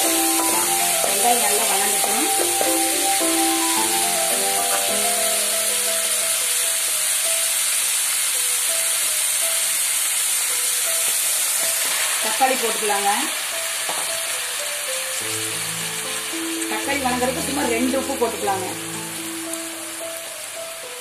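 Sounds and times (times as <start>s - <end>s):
faint background music: 0.0s - 6.1s, 11.8s - 14.3s, 16.4s - 21.0s
vegetables sizzling in hot oil: 0.0s - 21.0s.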